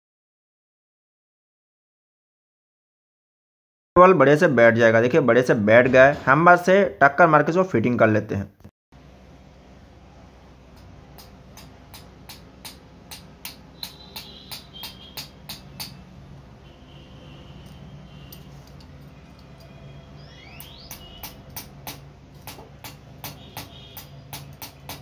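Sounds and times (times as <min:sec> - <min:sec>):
small hammer tapping metal: 0:10.7 - 0:16.0, 0:20.6 - 0:25.0.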